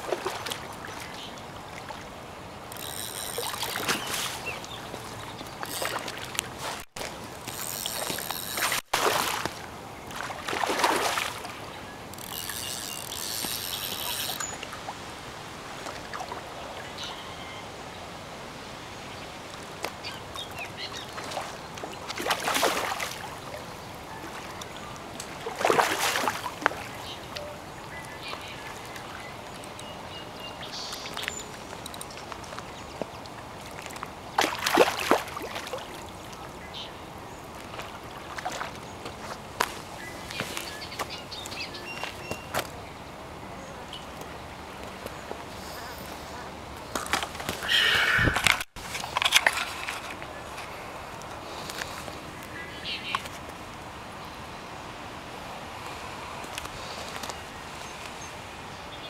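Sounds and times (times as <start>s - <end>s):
water splashing: 0.0s - 12.3s, 21.0s - 27.4s, 30.8s - 41.0s.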